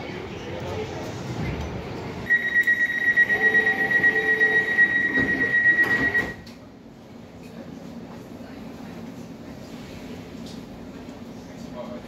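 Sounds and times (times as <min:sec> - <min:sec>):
high-pitched pulsing door warning tone: 0:02.3 - 0:06.5.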